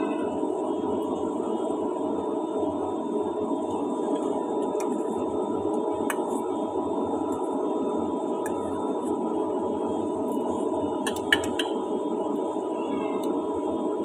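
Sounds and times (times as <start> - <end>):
steady hum: 0.0 - 14.0
chopsticks clicking on metal pot: 11.1 - 11.7.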